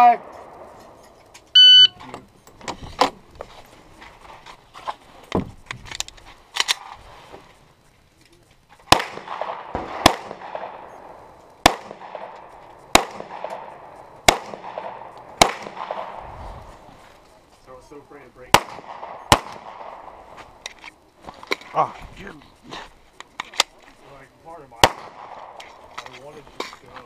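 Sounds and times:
pistol shots with echo: 0:08.9 - 0:16.2, 0:18.5 - 0:20.2, 0:24.8 - 0:25.6.

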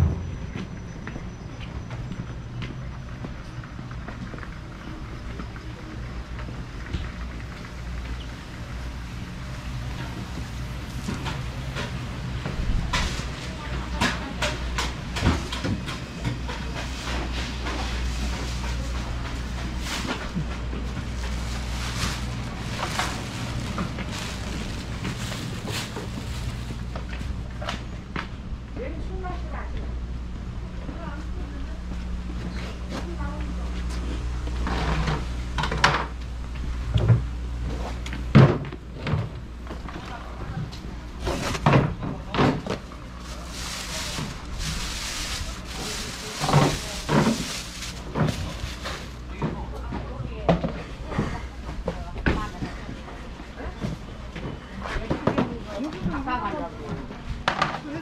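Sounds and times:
low rumble of street ambience: 0:00.0 - 0:58.0
footsteps on pavement: 0:00.4 - 0:04.5
rustling rushing noise: 0:19.7 - 0:26.9, 0:43.1 - 0:49.3.

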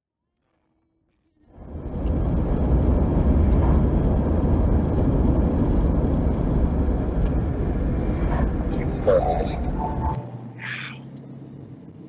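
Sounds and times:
car road and wind noise: 0:01.5 - 0:10.2.

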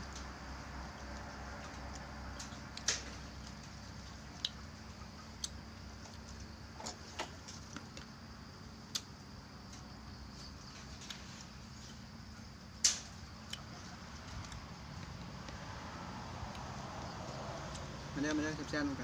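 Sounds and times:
chewing: 0:01.0 - 0:06.3, 0:13.5 - 0:15.3.

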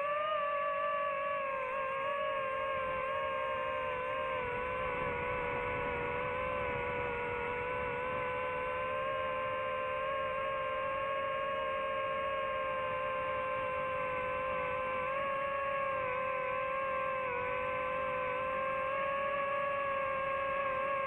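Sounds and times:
drone propellers whining: 0:00.0 - 0:21.0.

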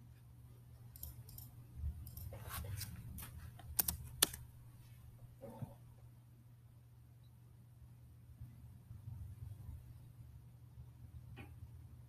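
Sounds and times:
low electrical hum: 0:00.0 - 0:12.0
keyboard typing: 0:00.9 - 0:04.5
mouse clicks: 0:03.6 - 0:04.4.

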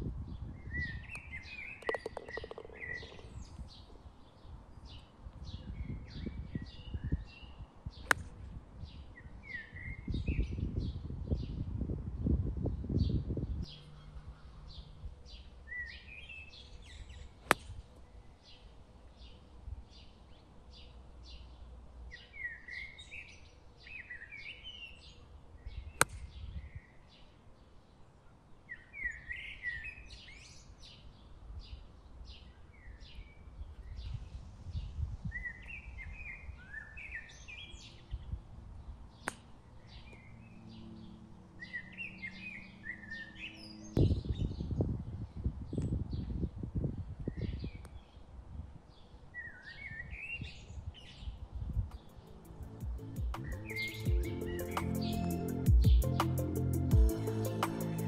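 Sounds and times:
birds chirping and singing: 0:00.5 - 0:11.7, 0:39.2 - 0:46.3, 0:49.4 - 0:58.0
golf club striking ball: 0:01.8 - 0:03.6, 0:17.4 - 0:17.8.

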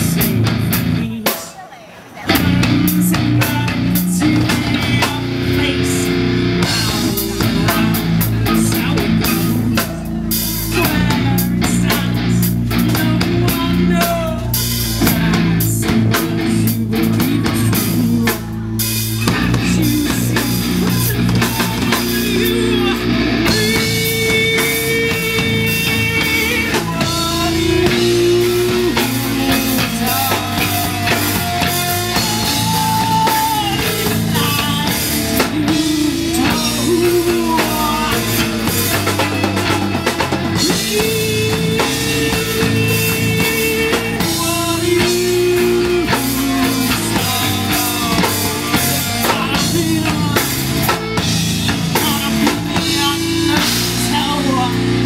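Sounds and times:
electric guitar: 0:00.0 - 0:01.4, 0:02.2 - 0:55.0
drum kit pounding: 0:00.0 - 0:01.6, 0:02.3 - 0:55.0.

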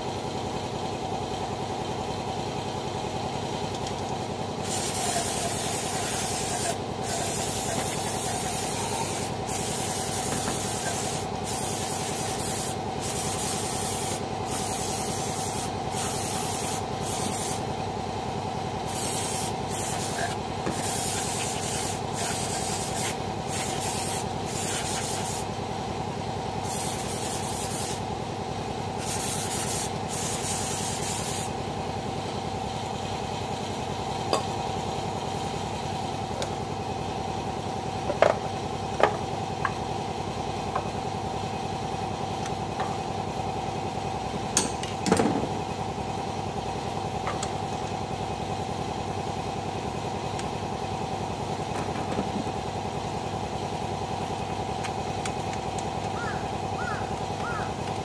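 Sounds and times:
aerosol spray hissing: 0:04.6 - 0:17.6, 0:18.9 - 0:25.4, 0:26.6 - 0:28.0, 0:29.0 - 0:31.5.

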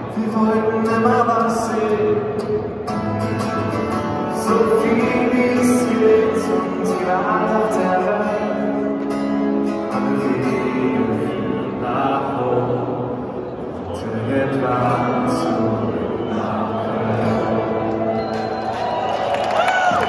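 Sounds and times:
guitar song over loudspeakers: 0:00.0 - 0:20.0
crowd singing along: 0:03.7 - 0:18.6.

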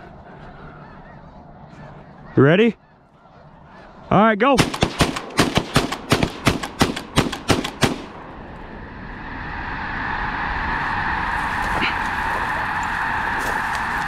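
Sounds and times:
geese calling: 0:00.0 - 0:04.8, 0:11.0 - 0:14.0
shotgun blasts: 0:04.6 - 0:08.2.

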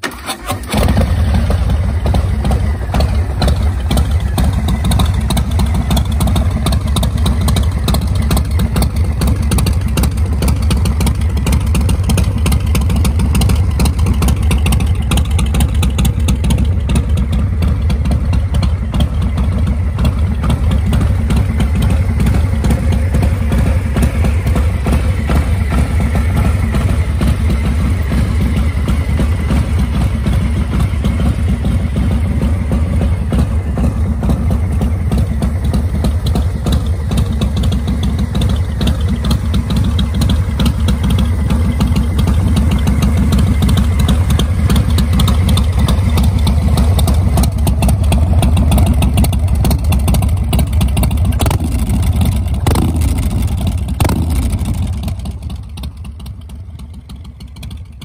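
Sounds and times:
motorcycle engine rumbling: 0:00.0 - 0:58.0.

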